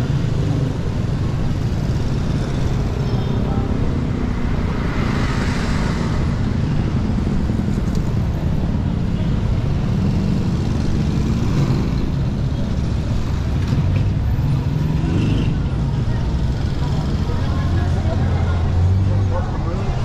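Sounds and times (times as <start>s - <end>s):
motorbike engines passing: 0.0s - 20.0s.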